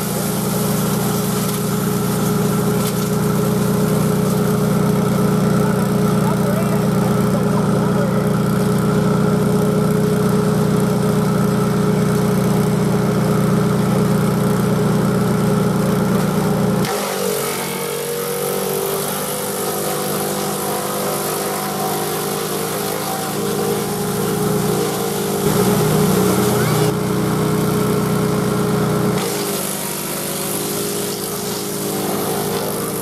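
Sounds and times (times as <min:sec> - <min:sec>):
tractor engine running: 0:00.0 - 0:16.8, 0:19.1 - 0:33.0
chipper shredder hissing: 0:00.0 - 0:33.0.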